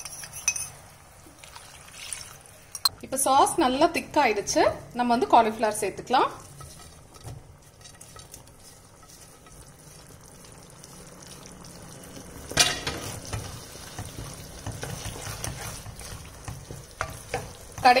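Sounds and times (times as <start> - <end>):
sauce sizzling in a wok: 3.7 - 18.0
wooden spatula scraping wok: 5.6 - 11.0, 12.6 - 18.0.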